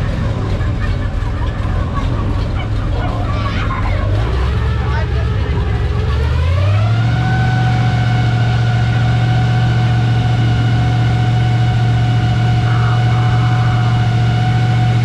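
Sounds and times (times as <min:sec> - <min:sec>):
boat motor whine: 0:00.0 - 0:15.0
low hum: 0:07.2 - 0:15.0.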